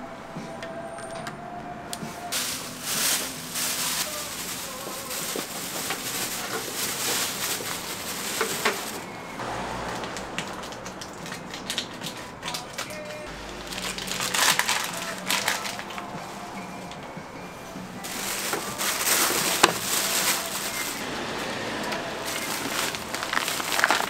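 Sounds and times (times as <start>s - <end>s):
hot oil sizzling and crackling: 2.3s - 12.2s, 18.0s - 21.4s, 22.2s - 24.0s.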